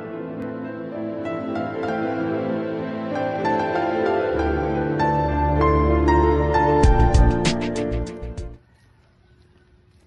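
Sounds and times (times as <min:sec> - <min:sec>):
background music with quick notes: 0:00.0 - 0:08.6.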